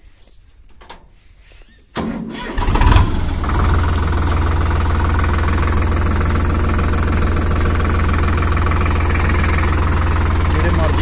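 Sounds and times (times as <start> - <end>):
diesel tractor engine idling: 2.3 - 11.0.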